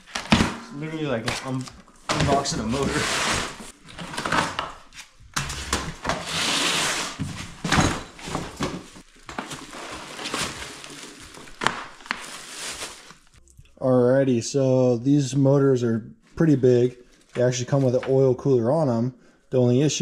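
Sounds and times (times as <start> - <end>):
plastic wrapping crinkling: 8.8 - 13.4.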